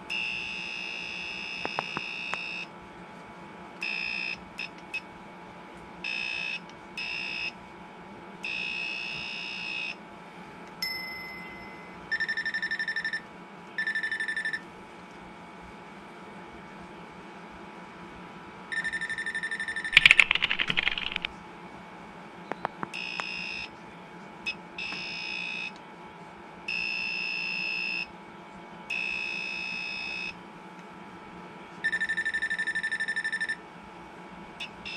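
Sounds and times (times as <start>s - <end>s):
electronic buzzer beeping: 0.2s - 2.7s
fast pulsed beeping: 18.8s - 21.3s.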